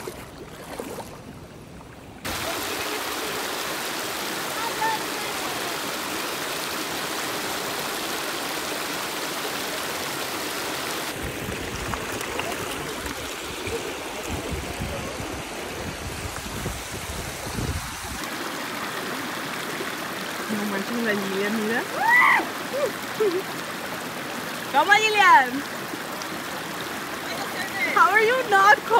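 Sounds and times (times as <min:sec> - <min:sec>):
creek running over stones: 0:00.0 - 0:28.9
low gusty rumble: 0:11.1 - 0:18.3.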